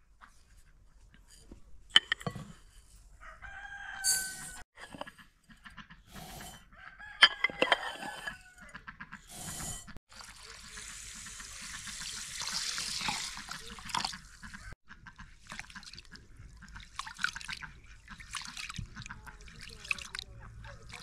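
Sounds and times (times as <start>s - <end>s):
rooster crowing: 3.2s - 4.6s, 6.8s - 8.7s
cup clinking against glass bowl: 4.0s - 4.6s, 7.2s - 8.4s.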